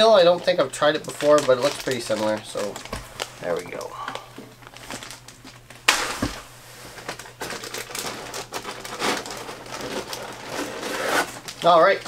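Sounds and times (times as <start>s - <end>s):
plastic packs crinkling: 0.0s - 12.0s.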